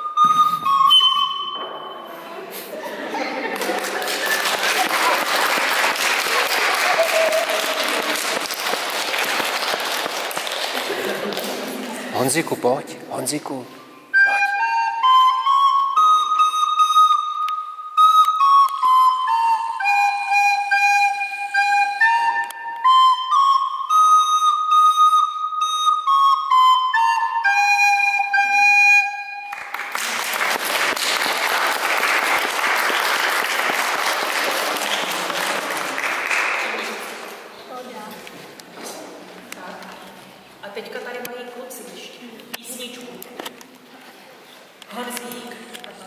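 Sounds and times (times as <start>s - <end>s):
recorder melody: 0.0s - 2.1s, 13.9s - 29.8s
audience applause: 3.4s - 12.0s, 29.6s - 37.4s.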